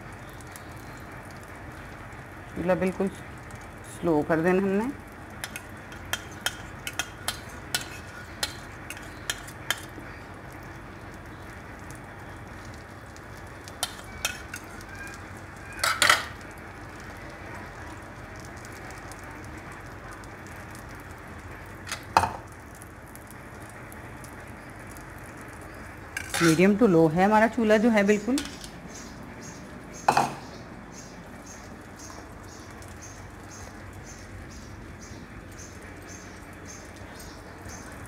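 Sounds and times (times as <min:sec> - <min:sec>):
food sizzling in oil: 0:00.0 - 0:38.0
fork clicking against pan: 0:05.4 - 0:09.9.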